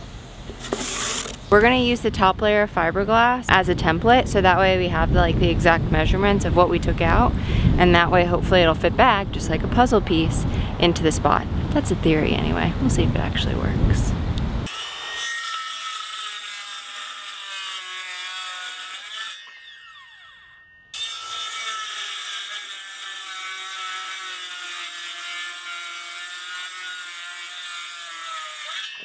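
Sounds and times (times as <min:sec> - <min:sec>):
circular saw cutting plywood: 0:00.5 - 0:01.7, 0:14.6 - 0:29.0.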